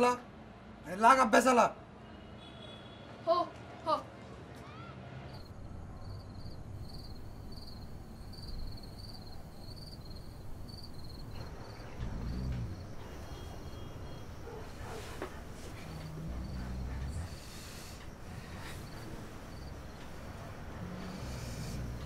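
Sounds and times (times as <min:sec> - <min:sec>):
cricket chirping: 0:05.4 - 0:22.0.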